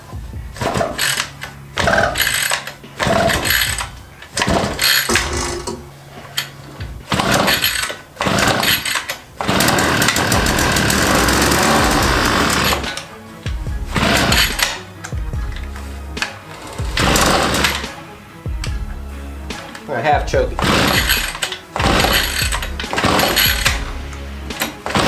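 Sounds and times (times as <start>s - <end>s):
recoil starter cord tugs: 0.5s - 18.9s, 19.5s - 25.0s
small engine running: 7.1s - 13.0s, 13.9s - 14.8s, 16.8s - 17.9s, 20.6s - 24.0s.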